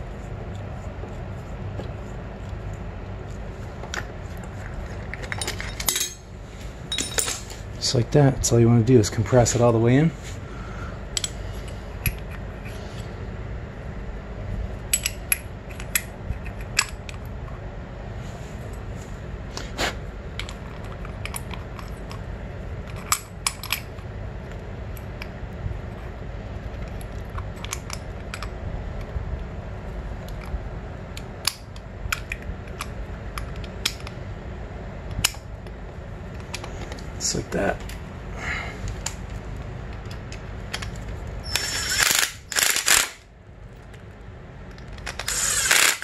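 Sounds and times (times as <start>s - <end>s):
low hum: 0.0s - 46.0s
metallic clicks of brake parts: 11.2s - 11.4s.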